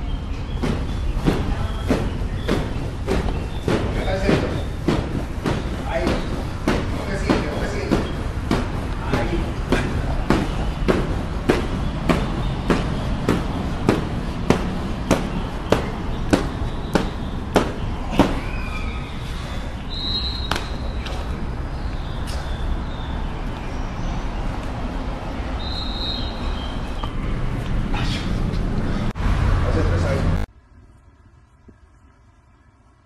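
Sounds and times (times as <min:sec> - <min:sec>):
battle ropes slapping gym floor: 0:00.5 - 0:18.9, 0:20.2 - 0:21.6.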